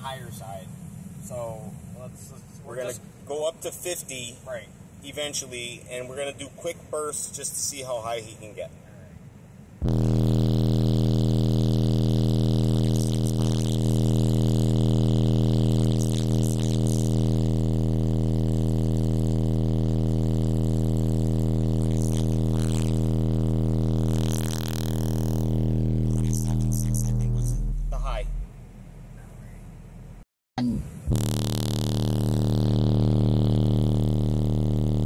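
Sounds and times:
deep bass test tone: 9.8s - 28.5s, 30.6s - 35.0s.

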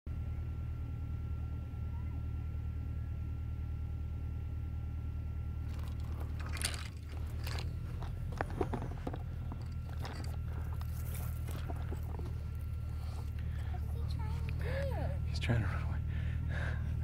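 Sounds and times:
steady low hum: 0.1s - 17.0s
dry grass rustling: 5.6s - 14.3s
footsteps crunching on gritty ground: 5.6s - 14.6s.

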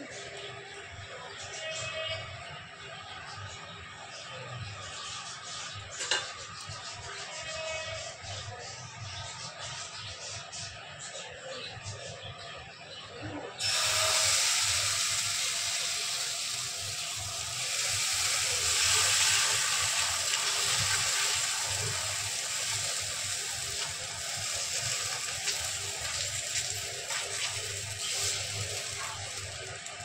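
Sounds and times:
batter sizzling on hot pan: 13.6s - 30.0s.

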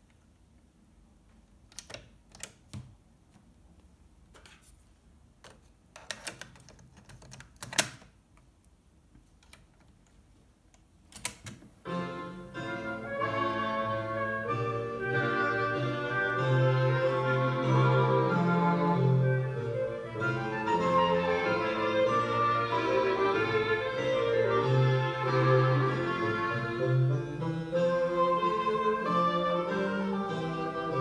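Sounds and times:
transport key clicking: 11.1s - 11.6s.

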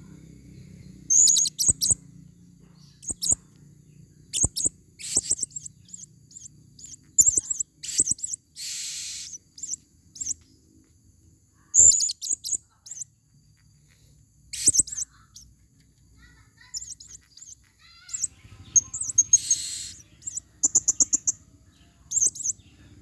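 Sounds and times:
parrots chirping: 1.0s - 3.6s, 4.2s - 10.6s, 11.7s - 15.5s, 16.2s - 23.0s
parrot hissing buzz: 7.8s - 9.4s, 18.8s - 20.1s.

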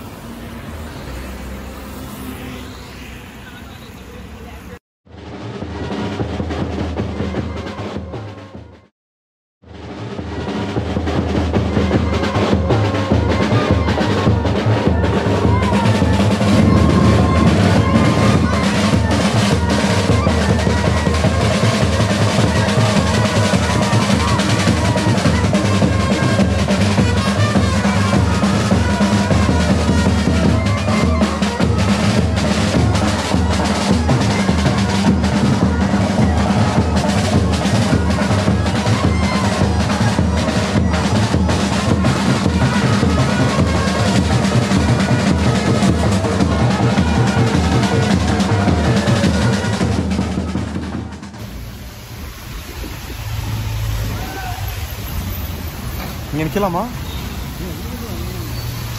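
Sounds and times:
music with fast dense drumming: 5.1s - 8.9s, 9.6s - 52.7s.

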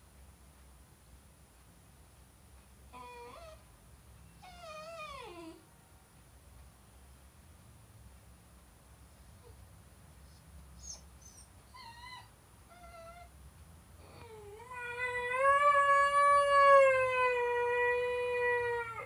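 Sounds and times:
dog howling: 14.1s - 19.0s.

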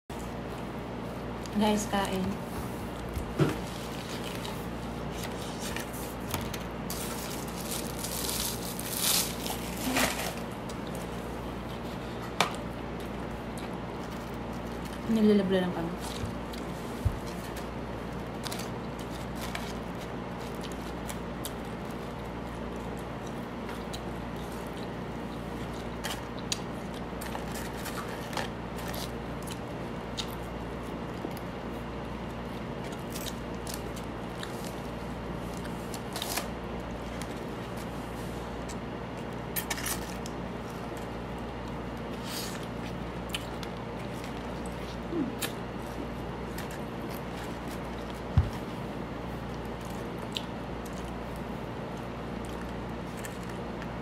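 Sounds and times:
chewing food: 16.0s - 37.9s, 38.5s - 48.3s, 49.3s - 54.0s.

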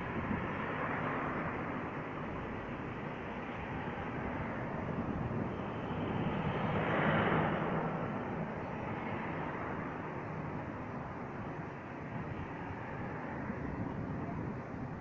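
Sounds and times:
cars passing: 0.0s - 15.0s
steady traffic hum: 0.0s - 15.0s.

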